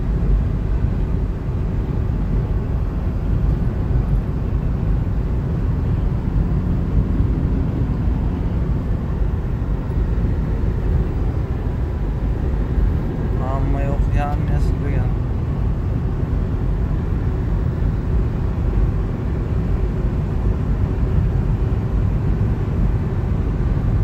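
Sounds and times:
car road noise rumble: 0:00.0 - 0:24.0.

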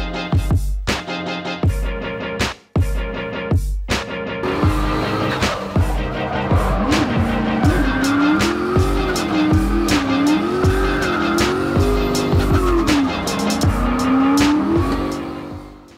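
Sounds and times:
music with drum beat: 0:00.0 - 0:15.9
car engine revving: 0:04.4 - 0:15.9
tyres squealing: 0:04.5 - 0:15.4.

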